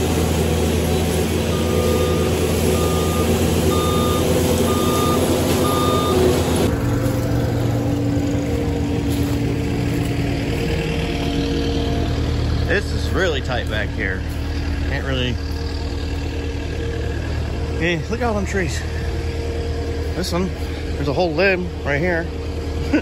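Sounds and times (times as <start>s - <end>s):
diesel engine running: 0.0s - 23.0s
reverse alarm beeping: 0.9s - 6.4s.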